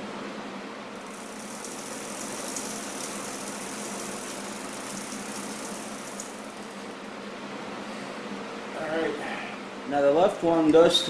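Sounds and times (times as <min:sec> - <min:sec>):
bicycle freewheel ticking: 0:01.0 - 0:06.8.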